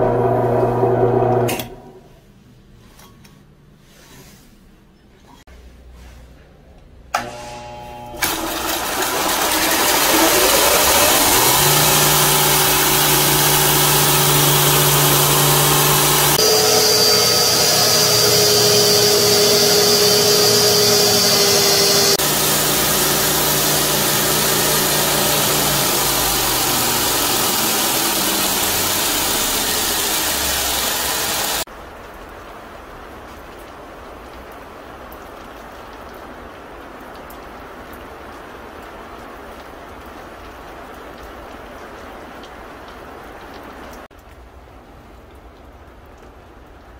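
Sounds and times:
belt sander motor whine: 7.2s - 31.6s
wood grinding on sanding belt: 8.2s - 31.6s.

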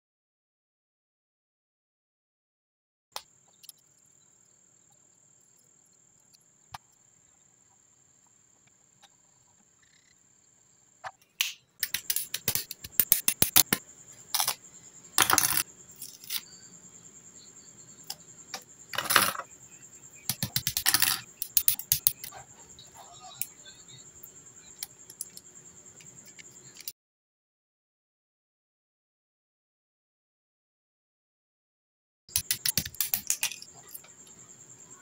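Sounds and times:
plastic parts clicking together: 32.3s - 34.0s.

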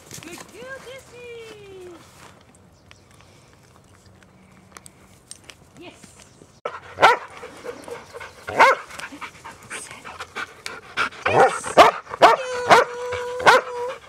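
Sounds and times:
dog barking: 6.7s - 7.3s, 8.5s - 8.8s, 11.3s - 13.9s.

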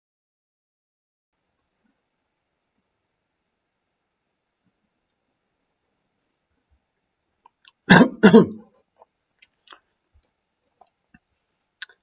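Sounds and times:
man clearing his throat: 7.9s - 8.7s.

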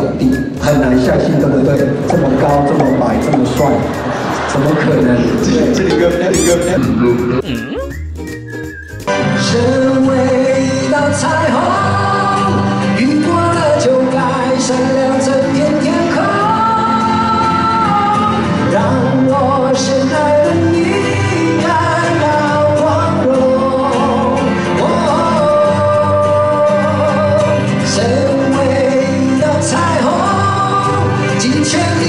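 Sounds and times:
live band accompaniment: 0.0s - 13.3s.

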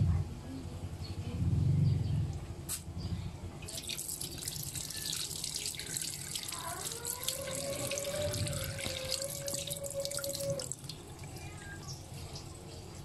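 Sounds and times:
tap water splashing in sink: 3.7s - 11.4s.

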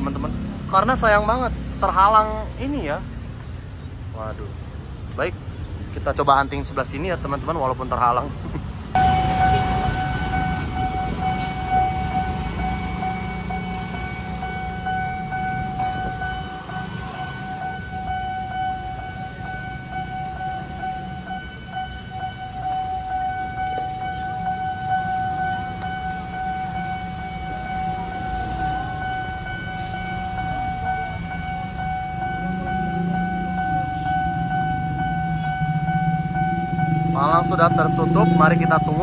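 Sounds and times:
idling motorcycle and car engines: 0.0s - 39.0s
level crossing warning siren: 8.9s - 39.0s.

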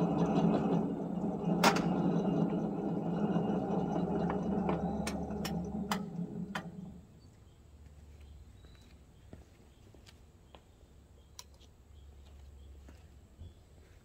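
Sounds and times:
electric motor hum: 0.0s - 7.2s.

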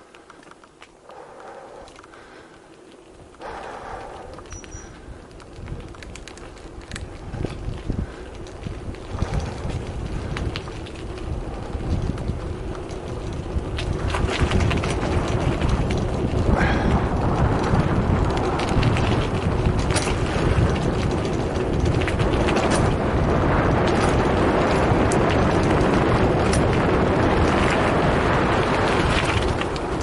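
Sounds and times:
bike and mount rattling: 0.0s - 30.0s
bike tyres on gravel: 0.0s - 30.0s
wind on microphone: 3.1s - 30.0s.

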